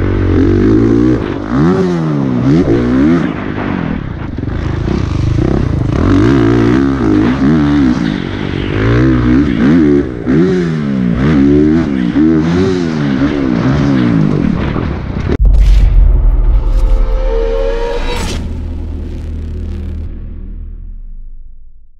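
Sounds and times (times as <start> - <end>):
motorcycle engine revving: 0.0 - 14.8
wind rush: 15.3 - 21.5.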